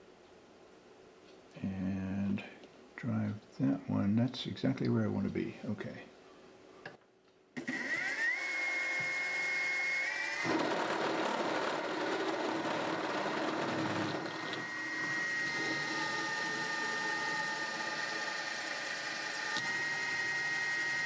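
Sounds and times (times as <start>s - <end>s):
drill cutting into wood: 7.6s - 21.0s
milling machine whine: 7.6s - 21.0s.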